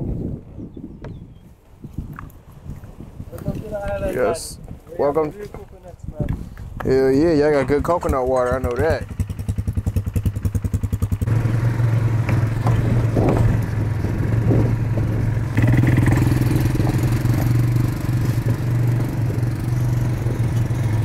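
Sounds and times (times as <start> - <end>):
quad bike engines running: 6.9 - 21.0.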